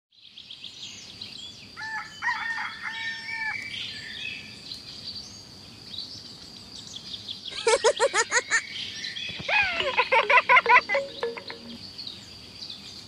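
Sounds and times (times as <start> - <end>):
rooster crowing: 1.8 - 3.6
small birds chirping: 3.8 - 13.0.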